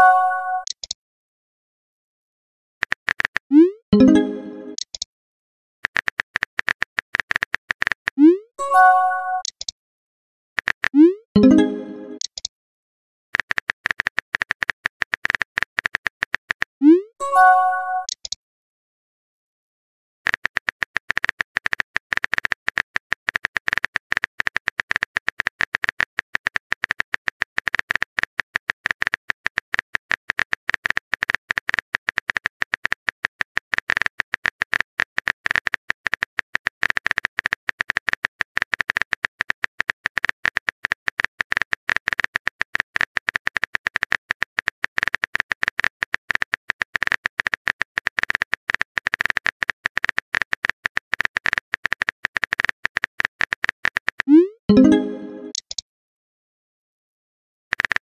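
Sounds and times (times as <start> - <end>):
keyboard typing clicks: 0.0 - 1.0, 2.8 - 5.1, 5.8 - 9.7, 10.6 - 12.5, 17.4 - 18.4, 33.8 - 55.8.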